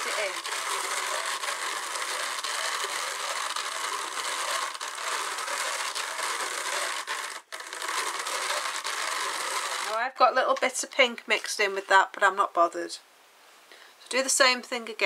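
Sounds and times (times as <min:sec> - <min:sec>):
drum carder whirring and clicking: 0:00.0 - 0:10.1.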